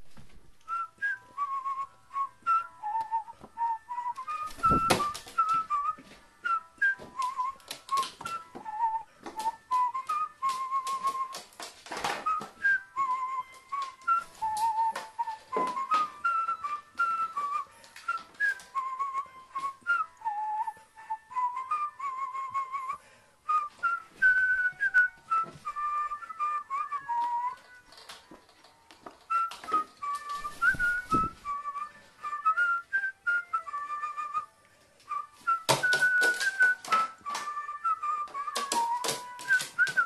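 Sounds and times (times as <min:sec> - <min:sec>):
whistled melody: 0:00.2 - 0:40.0
clicks and knocks: 0:35.7 - 0:37.6.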